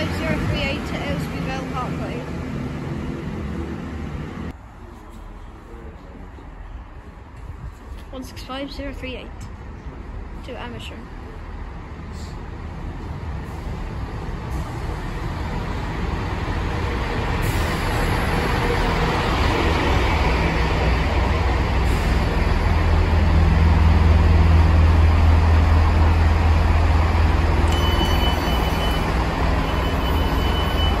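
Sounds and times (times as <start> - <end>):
diesel train engines droning: 0.0 - 31.0
steady high door tone: 27.6 - 31.0.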